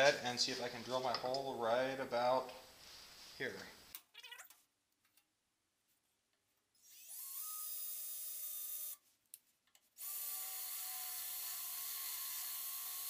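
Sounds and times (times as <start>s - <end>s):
electric drill boring into metal: 6.8s - 9.0s, 10.0s - 13.0s.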